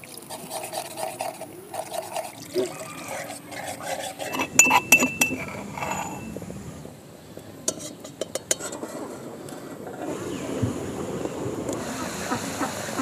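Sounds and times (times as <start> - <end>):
metal ladle clinking on wok: 4.2 - 6.3.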